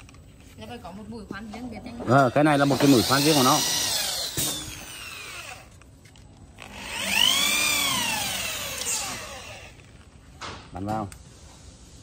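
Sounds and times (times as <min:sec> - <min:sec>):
electric drill spinning: 0:02.4 - 0:05.8, 0:06.6 - 0:10.0.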